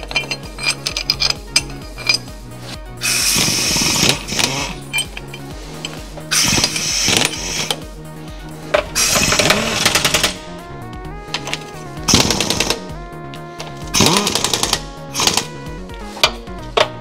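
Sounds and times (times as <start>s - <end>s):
impact wrench rattling: 0.0s - 2.4s, 3.0s - 7.8s, 8.7s - 10.4s, 11.3s - 12.9s, 13.6s - 15.6s
background music: 0.0s - 17.0s.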